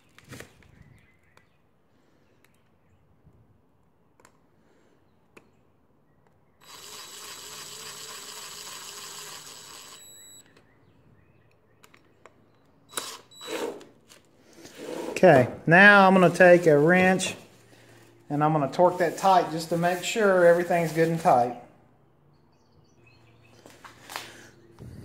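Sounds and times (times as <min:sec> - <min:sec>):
cordless drill spinning: 0:06.6 - 0:10.6, 0:12.9 - 0:15.2.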